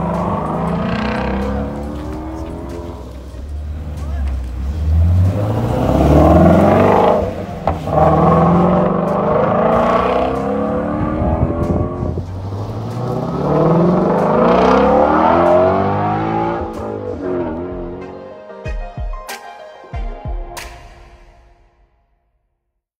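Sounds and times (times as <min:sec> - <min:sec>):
car engine accelerating hard: 0:00.0 - 0:18.2.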